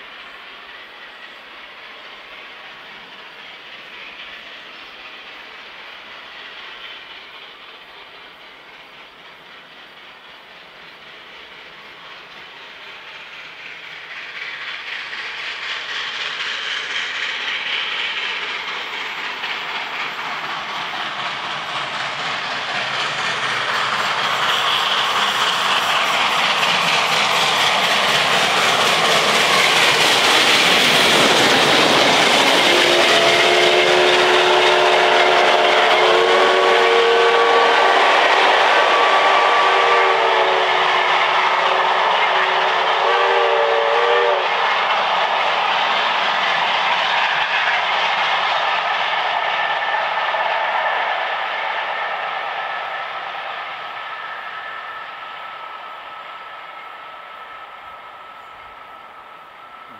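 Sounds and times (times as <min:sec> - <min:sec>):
carriages clattering on rails: 0:00.0 - 0:52.0
steam train passing: 0:00.0 - 0:59.9
steam whistle blast: 0:32.7 - 0:44.6.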